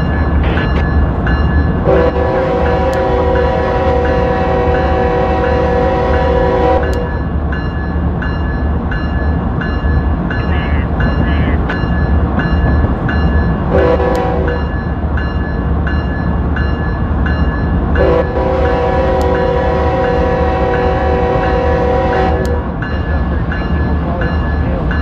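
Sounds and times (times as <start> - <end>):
locomotive engine rumble: 0.0 - 25.0
train horn: 1.8 - 7.2, 13.7 - 14.7, 18.0 - 22.6
bell ringing: 6.8 - 13.6.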